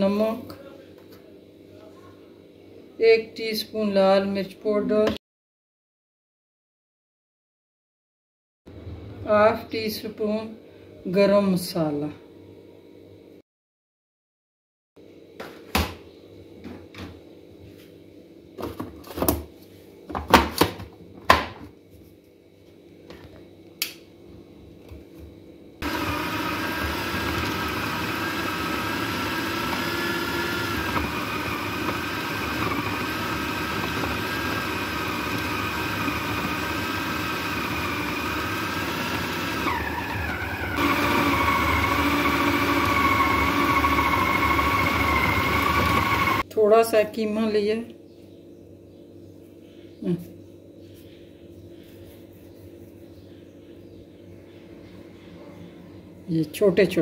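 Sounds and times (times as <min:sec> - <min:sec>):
food processor motor whining: 0:25.8 - 0:46.4.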